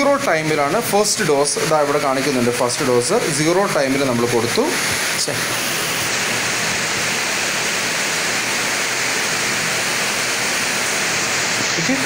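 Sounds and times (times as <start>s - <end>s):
steady static hiss: 0.0s - 12.0s.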